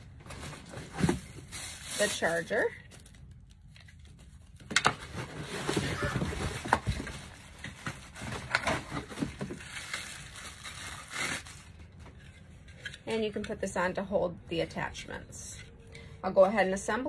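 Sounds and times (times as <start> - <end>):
plastic bags rustling and crinkling: 0.1 - 12.4.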